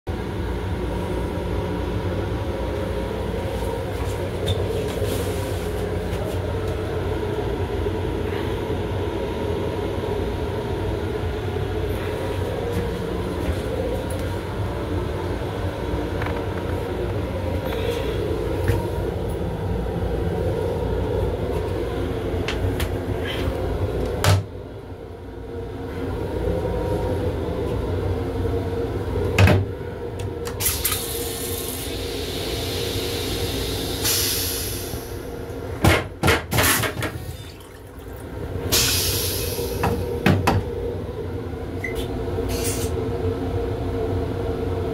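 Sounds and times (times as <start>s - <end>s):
railcar running rumble: 0.1s - 44.9s
toilet flushing: 30.6s - 40.4s.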